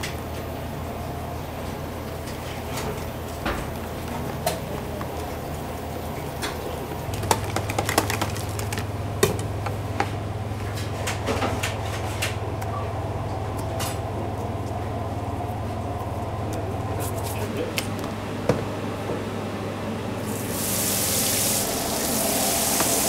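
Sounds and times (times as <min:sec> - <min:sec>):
kitchen machinery hum: 0:00.0 - 0:23.0.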